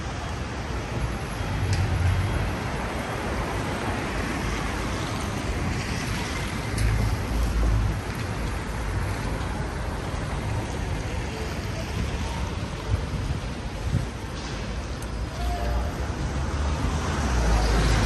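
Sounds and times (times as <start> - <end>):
wind rumbling on microphone: 0.0 - 15.2
wet traffic: 0.0 - 18.0.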